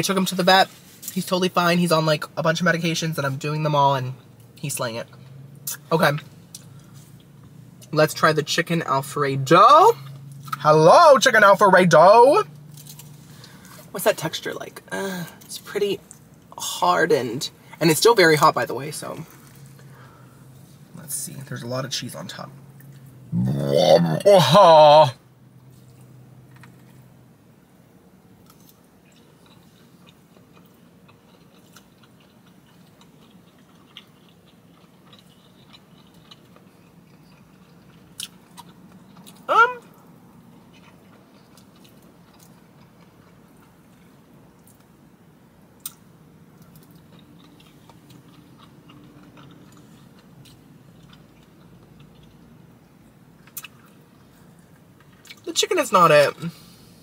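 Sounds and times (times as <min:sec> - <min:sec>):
chewing food: 0:25.6 - 0:27.1, 0:28.4 - 0:44.9, 0:45.8 - 0:55.5.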